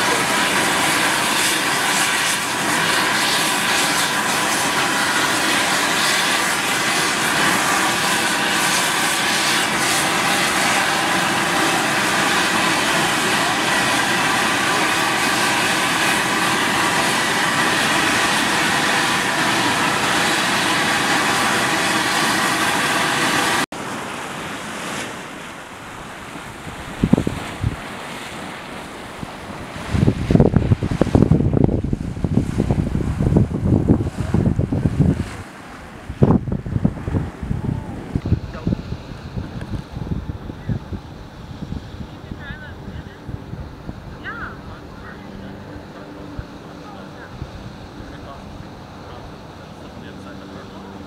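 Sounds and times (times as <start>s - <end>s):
steam vent hissing: 0.0s - 23.7s
wind noise: 25.8s - 49.5s
wind thumps on microphone: 26.6s - 28.0s, 29.2s - 42.2s.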